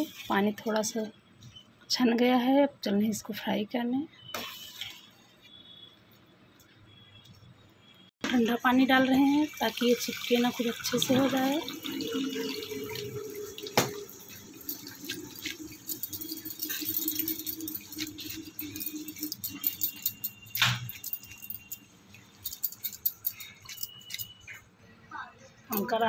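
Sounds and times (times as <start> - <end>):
water dripping through colander: 8.4 - 24.2
metal colander clinking and rattling: 13.6 - 24.4.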